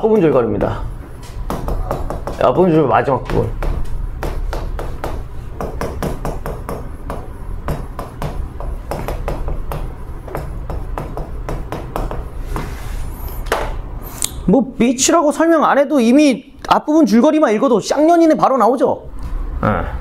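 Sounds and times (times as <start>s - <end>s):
chalk tapping and scraping: 0.0s - 13.4s.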